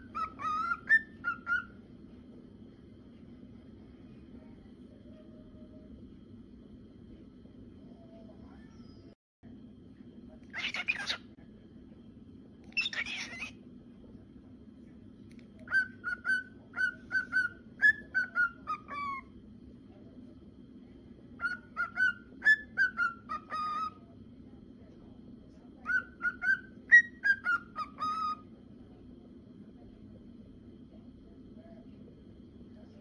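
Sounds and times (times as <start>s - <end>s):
cockatiel whistling: 0.0s - 1.8s, 12.7s - 13.6s, 15.6s - 19.3s, 21.4s - 24.0s, 25.8s - 28.5s
low steady hum: 0.0s - 33.0s.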